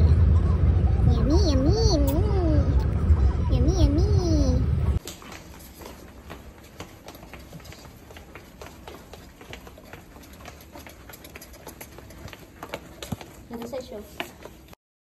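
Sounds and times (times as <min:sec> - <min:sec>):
footsteps of sandals on hard floor: 0:05.0 - 0:14.8.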